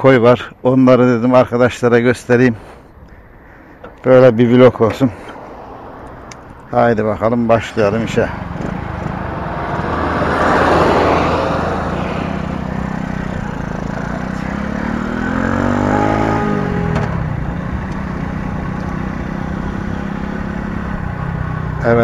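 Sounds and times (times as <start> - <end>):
rush of noise: 5.1 - 16.6
motorcycle engine pulling away: 7.6 - 22.0.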